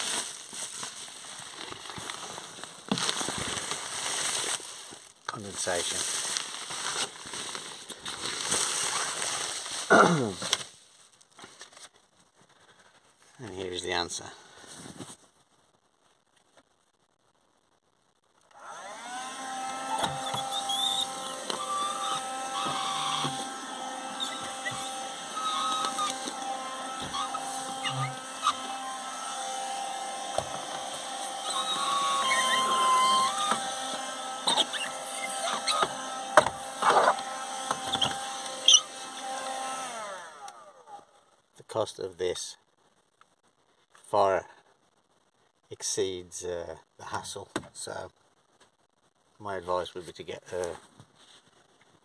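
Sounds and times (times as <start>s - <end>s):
window cover rustling and crackling: 0.0s - 12.1s
window vacuum motor whine: 18.5s - 41.1s.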